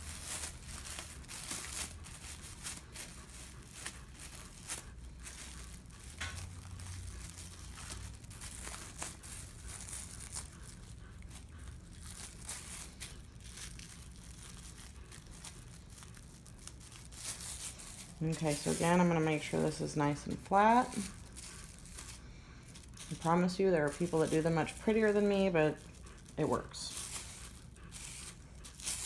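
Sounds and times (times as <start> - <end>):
plastic wrap crinkling: 0.0 - 29.0.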